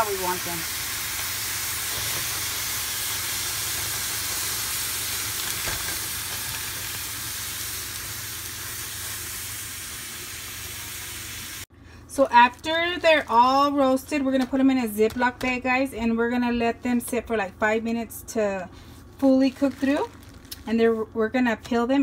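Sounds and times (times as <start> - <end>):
chiles sizzling in a pan: 0.0 - 14.0.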